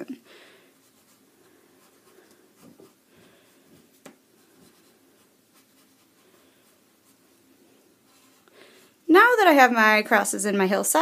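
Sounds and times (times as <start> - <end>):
pencil scratching on paper: 0.8 - 3.0, 4.4 - 7.3.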